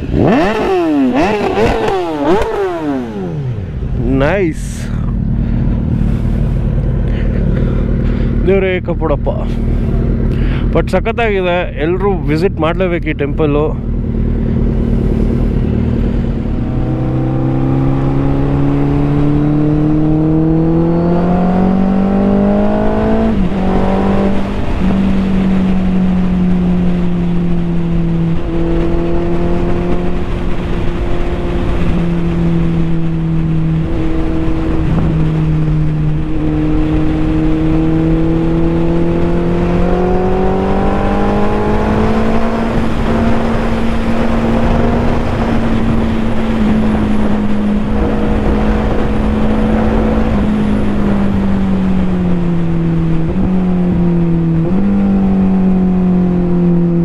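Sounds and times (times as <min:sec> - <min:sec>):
wind rush: 0:00.0 - 0:08.6, 0:09.6 - 0:57.0
motorcycle engine accelerating: 0:00.0 - 0:57.0.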